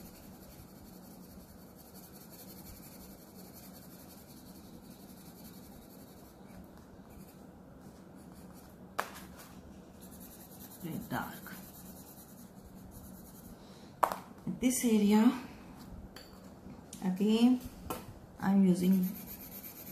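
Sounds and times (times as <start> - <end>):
pencil scratching on paper: 0.0 - 7.4, 9.9 - 13.5, 18.7 - 19.9.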